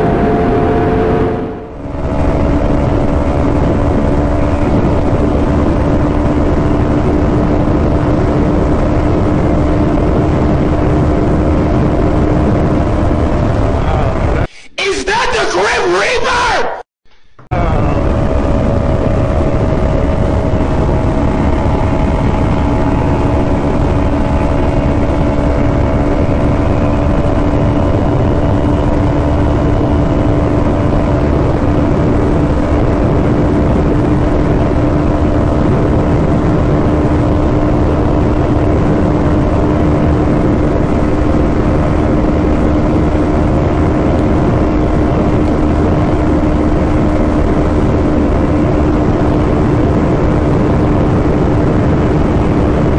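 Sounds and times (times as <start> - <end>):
heavy wind rush: 0.0 - 16.6, 17.6 - 52.9.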